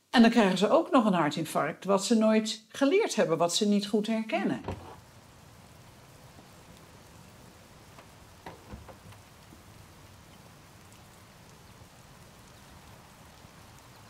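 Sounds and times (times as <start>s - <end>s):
light rain hiss: 0.0s - 14.0s
door pulled shut: 4.6s - 5.0s, 8.0s - 9.2s.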